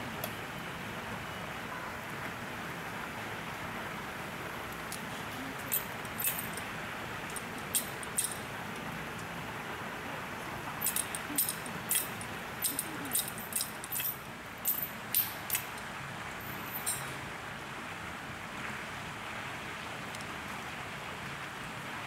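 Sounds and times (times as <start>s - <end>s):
background hiss: 0.0s - 22.0s
light high-pitched clinks: 4.9s - 8.5s, 10.8s - 17.2s.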